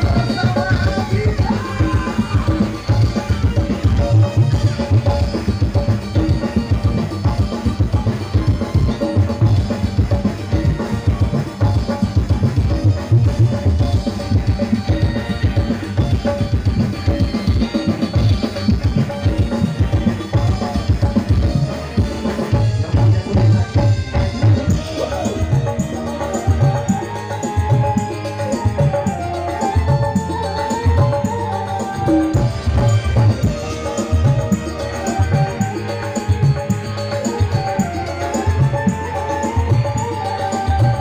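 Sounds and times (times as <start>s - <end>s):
bass guitar: 0.0s - 41.0s
drum kit beat: 0.0s - 41.0s
electric guitar: 0.0s - 41.0s
keyboard playing: 0.0s - 41.0s.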